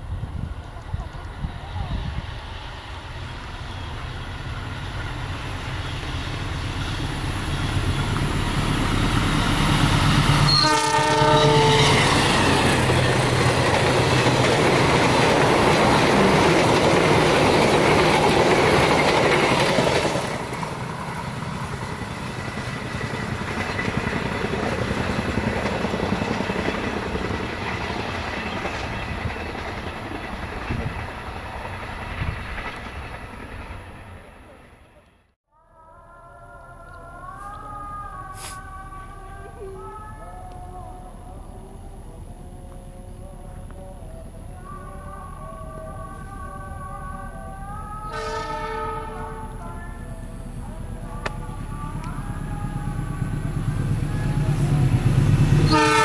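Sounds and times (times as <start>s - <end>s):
train passing: 0.0s - 35.4s, 36.3s - 56.0s
locomotive horn blast: 10.3s - 12.5s, 48.0s - 49.8s, 55.6s - 56.0s.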